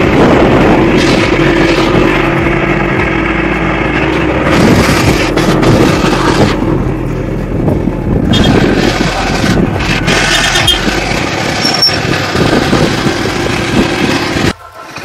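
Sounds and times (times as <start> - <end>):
wind rushing over microphone: 0.0 - 3.3, 4.3 - 14.6
motorcycle engine and road noise: 0.0 - 15.0
brief high squeak: 11.6 - 12.0.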